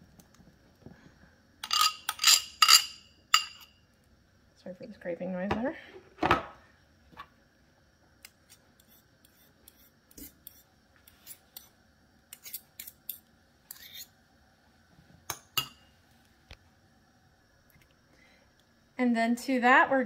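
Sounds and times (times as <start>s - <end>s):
fork scraping metal spoon: 1.6s - 3.7s, 8.5s - 14.2s.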